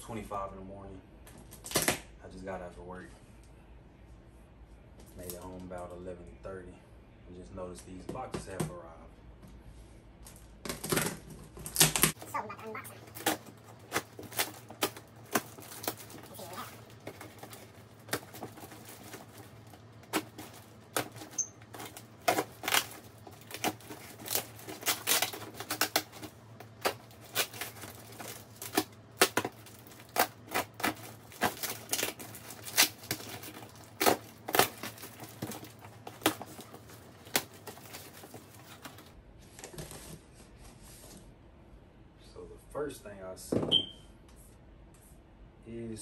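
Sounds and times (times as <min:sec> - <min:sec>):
packing tape ripping: 0:01.5 - 0:02.0, 0:10.7 - 0:12.2, 0:13.1 - 0:39.1
cardboard and wrapping crinkling: 0:10.2 - 0:41.3.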